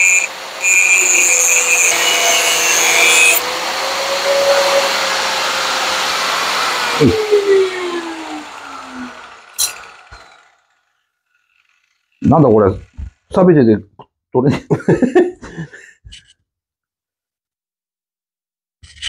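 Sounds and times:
angle grinder cutting steel: 0.0s - 13.5s.

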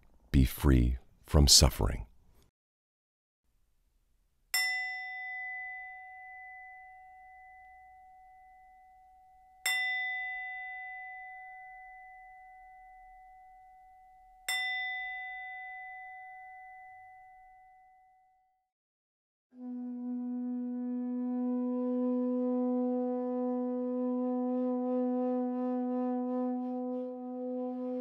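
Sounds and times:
meditation bell ringing: 4.6s - 18.6s.

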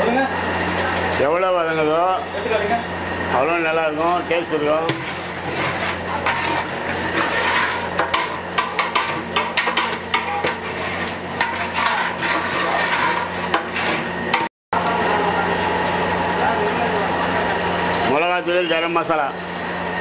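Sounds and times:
masala sauteing: 0.0s - 20.0s
metal ladle scraping a pot: 4.8s - 14.5s.

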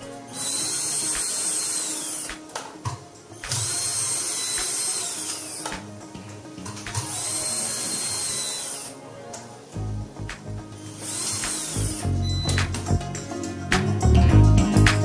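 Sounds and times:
cordless drill motor whine: 0.0s - 2.4s, 3.4s - 5.7s, 7.0s - 9.0s, 10.8s - 12.6s.

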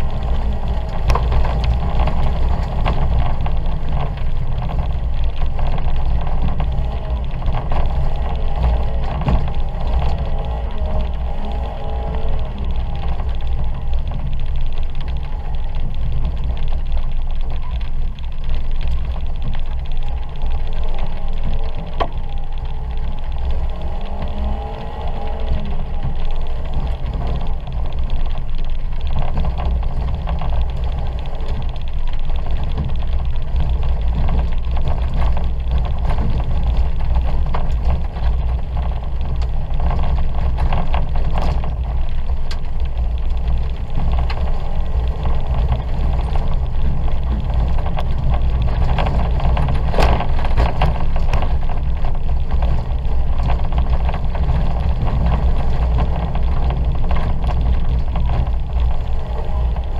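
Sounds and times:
car engine running hard: 0.0s - 59.9s.

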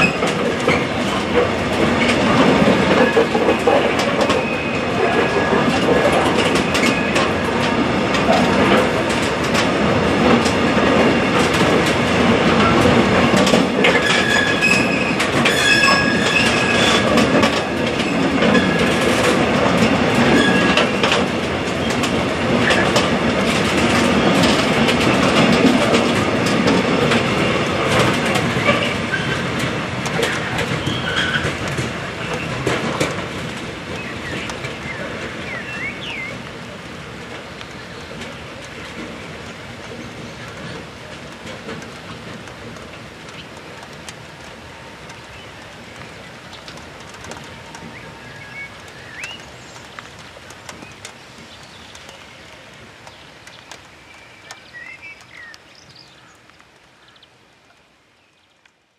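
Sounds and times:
freight train wheels rumbling: 0.0s - 58.1s
bird chirps: 47.9s - 49.8s.

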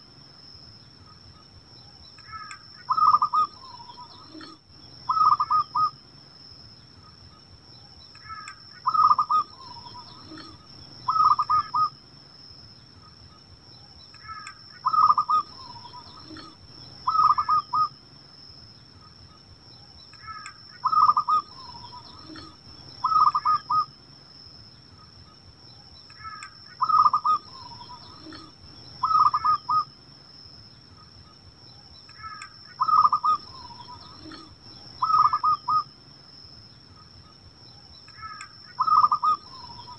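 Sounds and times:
dove cooing: 2.3s - 5.9s, 8.3s - 11.9s, 14.2s - 17.9s, 20.2s - 23.9s, 26.2s - 29.9s, 32.2s - 35.9s, 38.2s - 39.9s.

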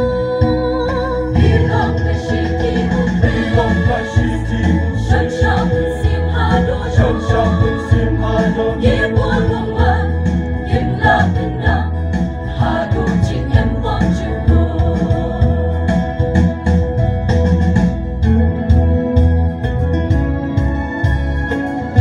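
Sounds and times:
deep steady accompaniment: 0.0s - 22.0s
choir singing a hymn: 1.3s - 16.2s.

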